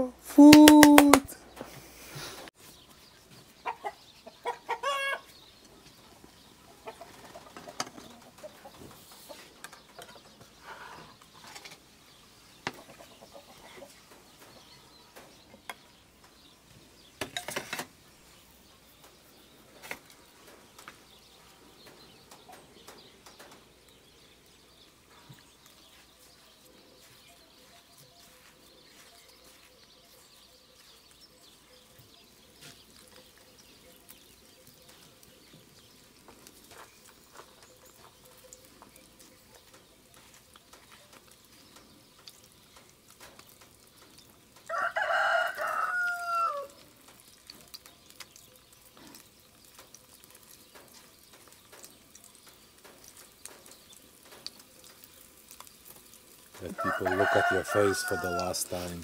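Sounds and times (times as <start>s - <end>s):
frying in oil: 0.0s - 59.0s
rooster crowing: 44.7s - 46.8s, 56.7s - 58.8s.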